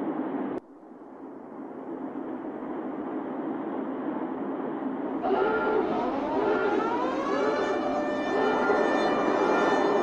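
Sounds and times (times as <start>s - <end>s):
steady rushing noise: 0.0s - 10.0s
warning siren wailing: 5.2s - 10.0s.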